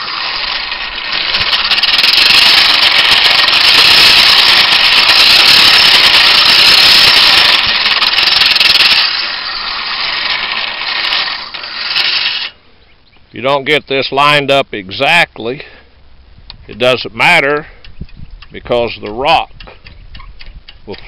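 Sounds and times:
grinding stone rasping on steel: 0:00.0 - 0:12.6.

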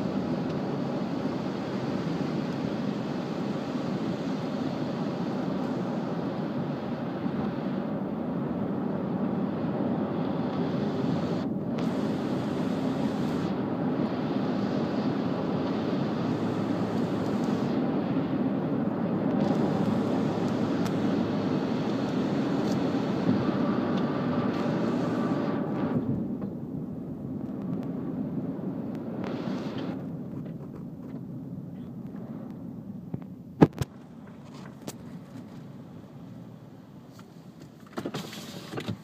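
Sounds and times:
tyre hiss on wet road: 0:10.2 - 0:18.0, 0:19.3 - 0:26.0, 0:37.1 - 0:39.0.

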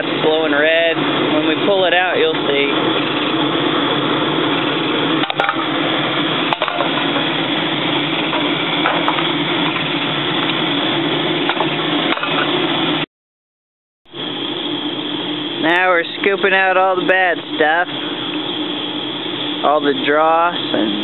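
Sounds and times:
fire popping: 0:00.0 - 0:12.8
furnace blower rushing hum: 0:00.0 - 0:13.1, 0:14.1 - 0:21.0.

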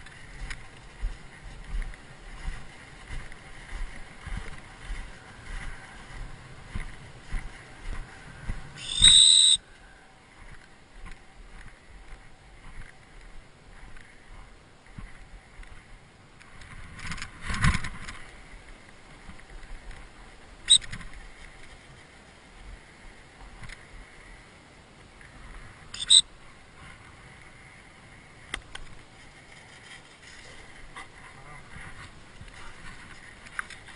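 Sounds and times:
shrill dog whistle blasts: 0:08.8 - 0:09.6, 0:26.0 - 0:26.2.

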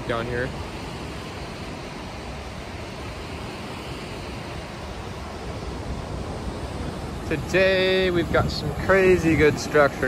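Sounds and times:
ocean surf: 0:00.0 - 0:10.0
wind rumble on microphone: 0:04.2 - 0:10.0.

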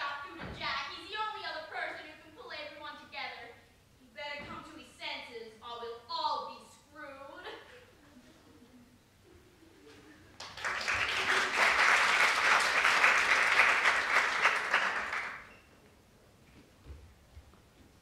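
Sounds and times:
audience applauding: 0:10.4 - 0:15.6.

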